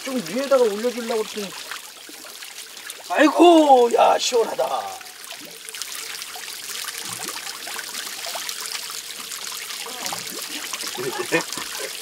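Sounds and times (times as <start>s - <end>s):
water pouring into a pond: 0.0s - 12.0s
faint small splashes: 5.0s - 12.0s.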